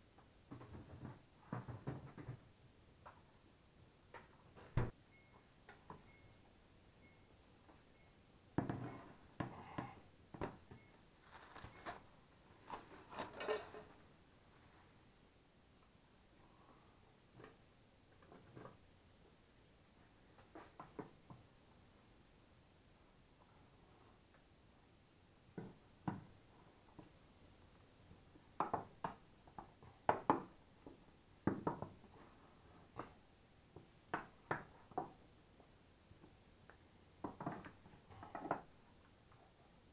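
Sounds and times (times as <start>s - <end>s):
cling film crinkling: 11.2s - 13.4s.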